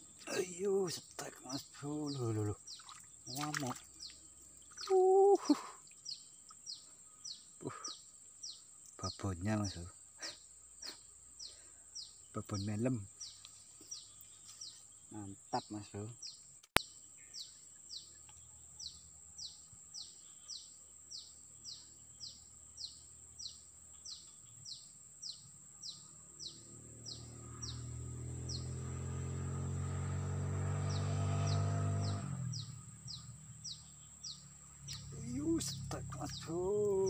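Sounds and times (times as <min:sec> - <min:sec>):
bird chirping: 0:00.0 - 0:37.0
high insect whine: 0:17.2 - 0:37.0.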